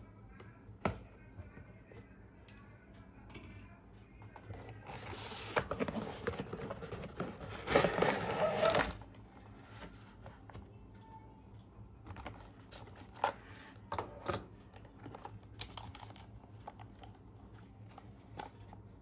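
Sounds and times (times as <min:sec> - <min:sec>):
soft background music: 0:00.0 - 0:19.0
cardboard scraping and rustling: 0:04.9 - 0:10.2.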